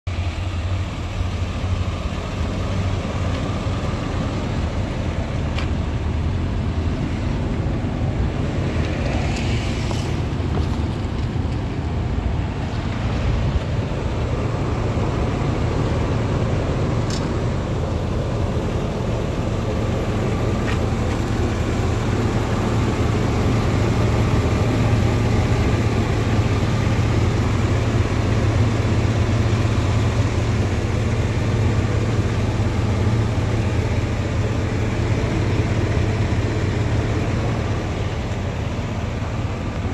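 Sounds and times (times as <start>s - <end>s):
truck engine idling: 0.1s - 39.9s.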